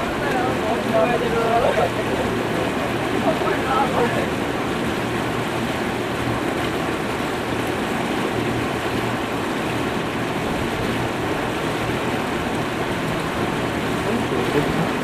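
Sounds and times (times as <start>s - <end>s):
boat engine humming: 0.0s - 15.0s
water rushing from boat hull: 0.0s - 15.0s.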